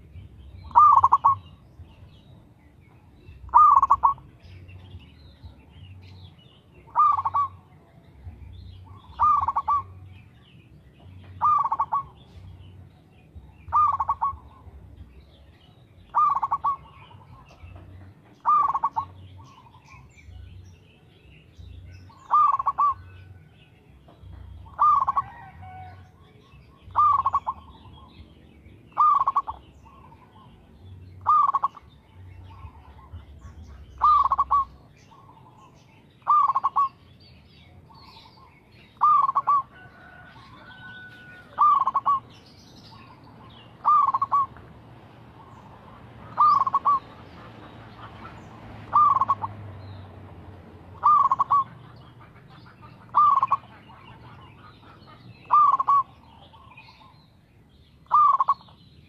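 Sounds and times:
dove cooing: 0:00.6 - 0:01.7, 0:03.3 - 0:04.4, 0:06.8 - 0:07.7, 0:08.8 - 0:10.0, 0:11.3 - 0:12.6, 0:13.4 - 0:14.9, 0:16.1 - 0:17.8, 0:18.4 - 0:20.0, 0:22.1 - 0:23.4, 0:24.4 - 0:26.0, 0:26.6 - 0:28.1, 0:28.9 - 0:37.0, 0:37.9 - 0:49.6, 0:50.9 - 0:57.1, 0:58.0 - 0:58.7.

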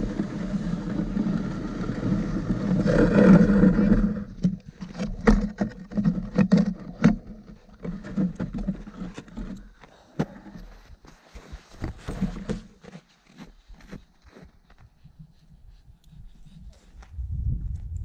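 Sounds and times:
sled rushing over packed snow: 0:00.0 - 0:04.4.

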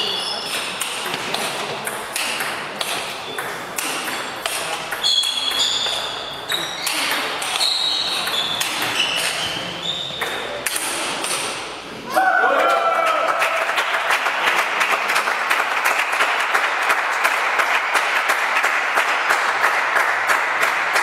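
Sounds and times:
sports shoes squeaking on floor: 0:00.0 - 0:00.8, 0:02.9 - 0:10.6.

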